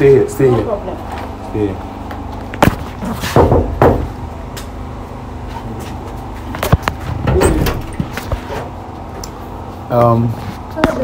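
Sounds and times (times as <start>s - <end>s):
knocking on door: 3.2s - 4.2s.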